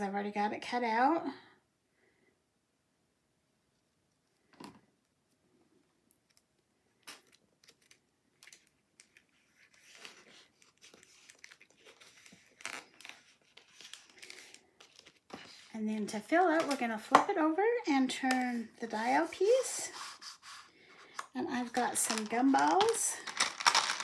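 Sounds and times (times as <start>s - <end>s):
card rustling: 8.5s - 15.7s, 17.8s - 24.0s.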